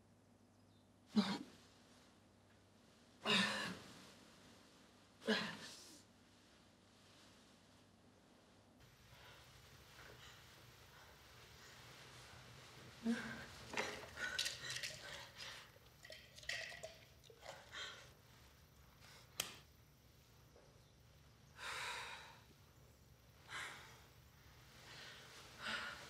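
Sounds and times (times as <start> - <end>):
woman breathing heavily: 8.8 - 15.8, 21.6 - 22.6, 23.3 - 26.0.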